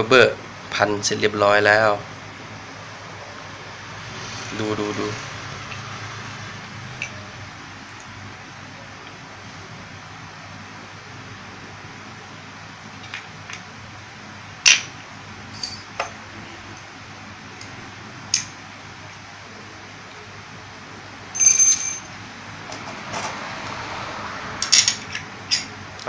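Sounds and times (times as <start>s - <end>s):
ringing metallic clink: 15.5s - 16.0s, 21.4s - 22.1s.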